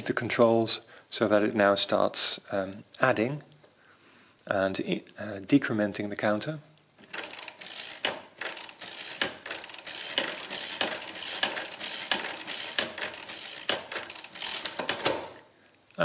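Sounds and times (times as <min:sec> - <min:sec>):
mechanical calculator gears clattering: 0:07.0 - 0:15.4
sharp clicks of calculator: 0:07.1 - 0:15.4.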